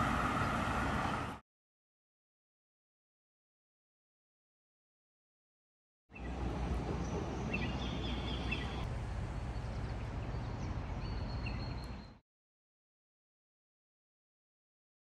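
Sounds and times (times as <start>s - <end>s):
birds chirping: 6.1s - 12.2s.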